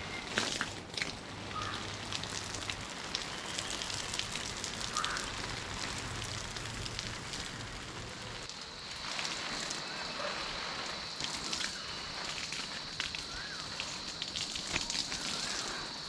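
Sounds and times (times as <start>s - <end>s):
hose water spraying onto plants: 0.0s - 16.0s.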